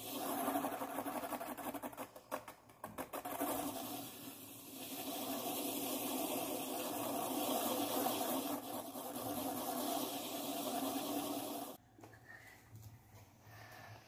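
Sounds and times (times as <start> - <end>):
marker scraping spinning cardboard: 0.0 - 11.8
small fan motor: 3.4 - 11.8.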